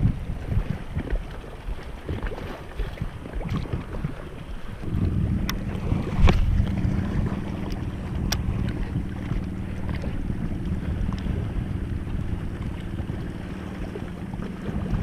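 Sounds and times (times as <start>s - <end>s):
waves washing against rocks: 0.0s - 15.0s
wind buffeting microphone: 0.0s - 15.0s.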